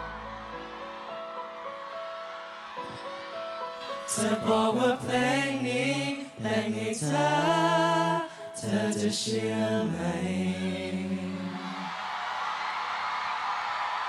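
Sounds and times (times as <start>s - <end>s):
men singing together: 4.0s - 11.9s.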